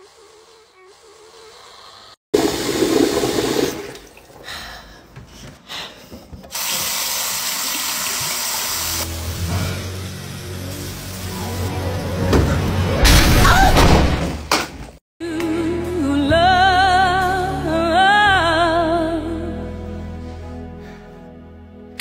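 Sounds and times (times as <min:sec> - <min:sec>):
toilet flushing: 0:02.3 - 0:04.5, 0:06.5 - 0:12.6
water running at a sink: 0:02.4 - 0:04.4, 0:06.5 - 0:09.1.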